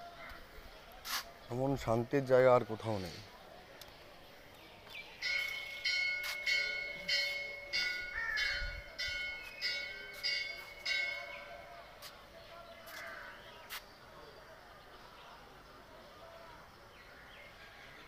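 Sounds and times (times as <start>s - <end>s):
temple bell ringing: 5.2s - 11.9s.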